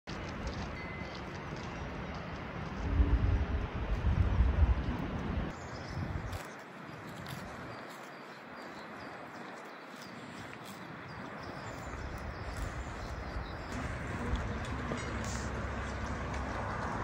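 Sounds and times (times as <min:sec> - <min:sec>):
steady outdoor hiss: 0:00.1 - 0:17.0
low rumble: 0:02.6 - 0:05.5, 0:12.2 - 0:17.0.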